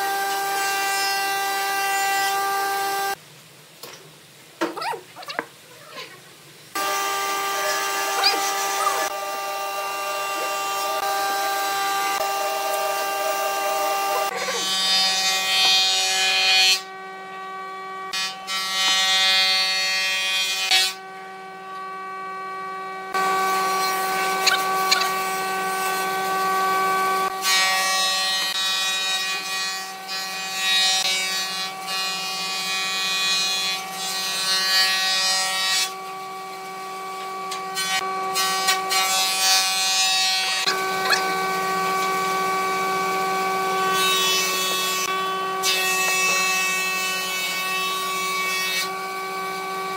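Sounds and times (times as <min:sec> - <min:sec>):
electric motor whine: 0:06.8 - 0:15.2, 0:21.0 - 0:27.4, 0:40.5 - 0:47.6.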